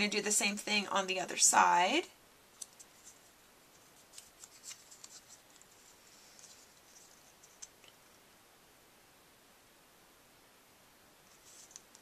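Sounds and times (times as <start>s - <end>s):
cardstock rustling and ticking: 2.6s - 8.0s.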